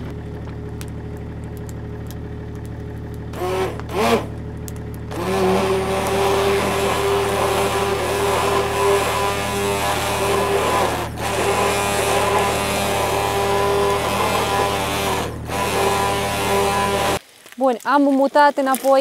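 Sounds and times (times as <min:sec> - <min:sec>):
immersion blender whirring: 0:03.4 - 0:04.4, 0:05.1 - 0:17.2.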